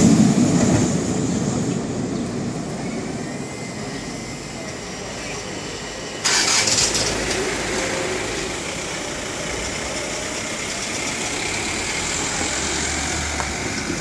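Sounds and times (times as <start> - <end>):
loud rush of noise: 0.0 - 14.0
van engine idling: 3.5 - 14.0.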